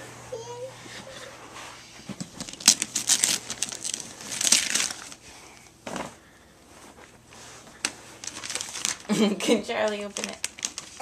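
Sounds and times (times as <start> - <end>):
wrapping paper crinkling and tearing: 2.4 - 5.3, 7.8 - 11.0.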